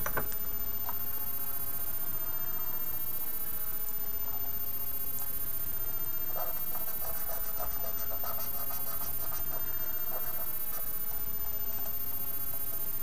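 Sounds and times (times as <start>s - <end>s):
cotton bud scratching plastic: 6.2s - 12.8s.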